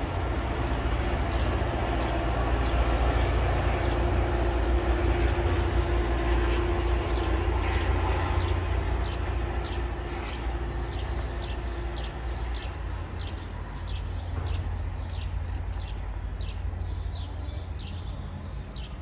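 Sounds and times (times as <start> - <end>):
train rumbling: 0.0 - 19.0
bird chirping: 7.0 - 19.0.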